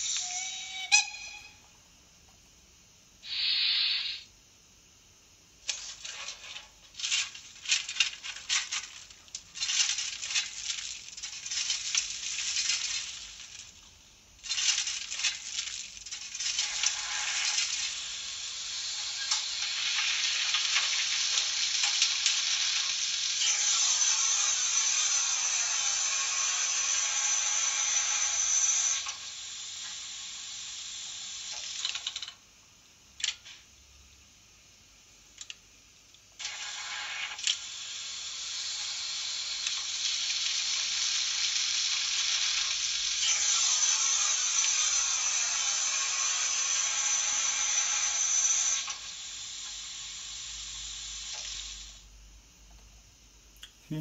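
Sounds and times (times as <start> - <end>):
steam hiss sound effect: 0.0 - 1.6, 3.2 - 4.3, 16.3 - 31.8, 36.4 - 52.1
short bursts of noise: 3.2 - 4.3
thin high tone: 3.2 - 4.3.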